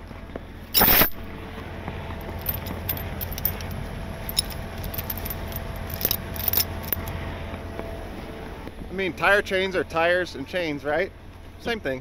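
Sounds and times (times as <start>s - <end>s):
chain links clinking: 0.8s - 1.2s, 2.2s - 7.1s.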